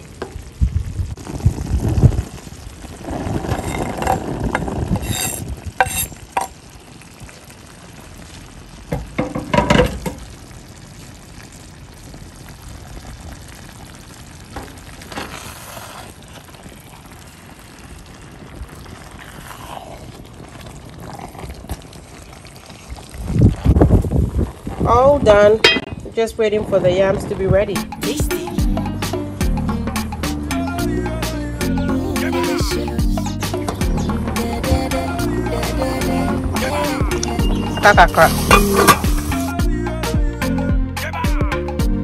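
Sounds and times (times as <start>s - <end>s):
stew simmering with soft sizzle: 0.0s - 40.2s
knife scraping wooden board: 5.0s - 6.1s
spoon stirring stew: 37.2s - 39.4s.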